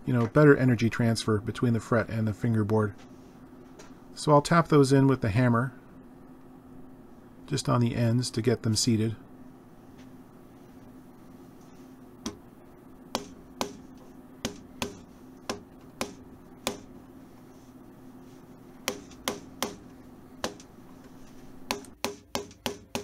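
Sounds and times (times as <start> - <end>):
hammer tapping fret wire: 13.2 - 17.0, 18.8 - 20.7, 21.7 - 23.0.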